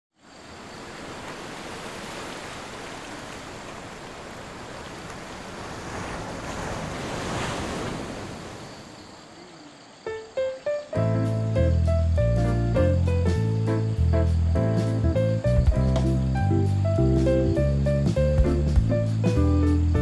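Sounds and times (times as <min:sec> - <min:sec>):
river current rushing: 0:00.2 - 0:09.4.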